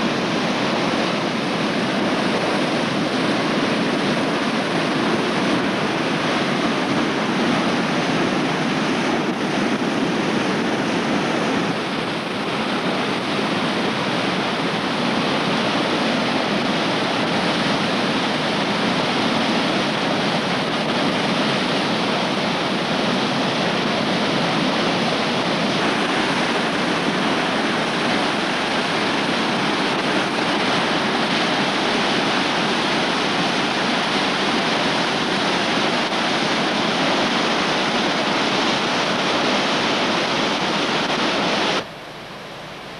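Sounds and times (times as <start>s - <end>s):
water rushing over rocks: 0.0s - 42.9s.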